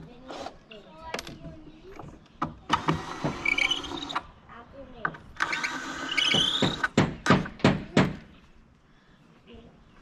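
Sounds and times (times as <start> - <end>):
hammer knocking on wooden boards: 6.3 - 8.3.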